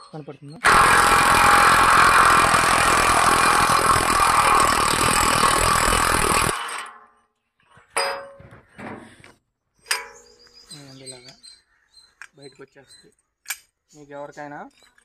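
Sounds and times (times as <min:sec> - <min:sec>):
power tool running with rattle: 0:00.6 - 0:06.8.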